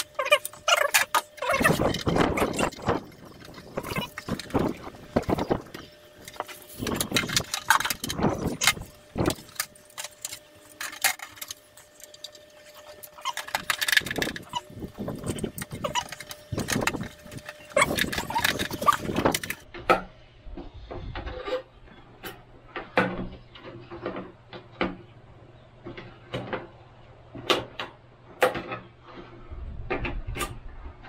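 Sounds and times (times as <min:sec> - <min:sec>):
plastic plate clattering: 0:00.2 - 0:11.6, 0:12.8 - 0:19.6.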